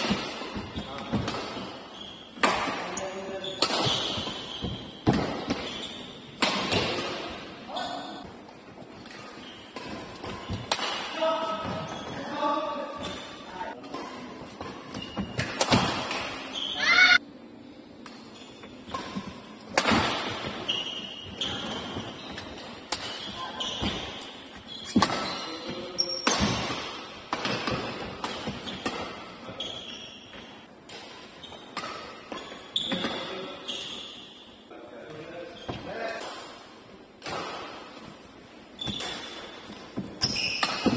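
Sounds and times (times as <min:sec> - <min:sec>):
rackets hitting shuttlecock: 0:00.0 - 0:07.3, 0:09.0 - 0:11.7, 0:13.8 - 0:16.6, 0:18.0 - 0:29.5, 0:38.8 - 0:40.9
shoes squeaking on court: 0:00.4 - 0:06.9, 0:07.7 - 0:10.7, 0:11.4 - 0:17.2, 0:18.2 - 0:26.7, 0:27.4 - 0:34.7, 0:38.7 - 0:40.9.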